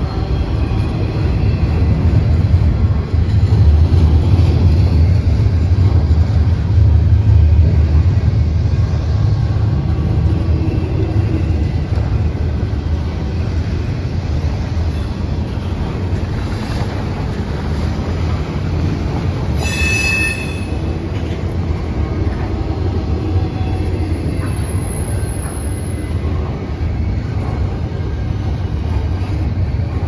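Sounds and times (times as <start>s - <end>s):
freight train rumbling past: 0.0s - 30.0s
high-pitched wheel squeal: 19.6s - 20.8s.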